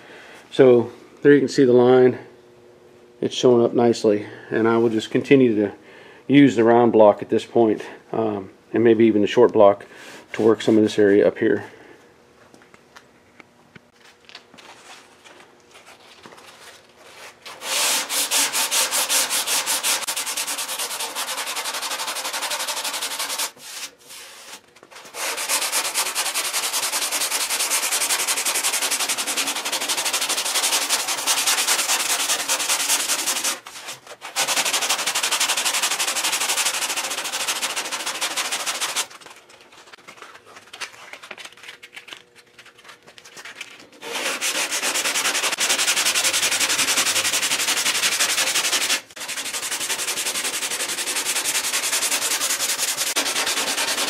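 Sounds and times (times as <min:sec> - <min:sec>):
hand sanding strokes: 0:17.1 - 0:40.5, 0:42.8 - 0:54.0.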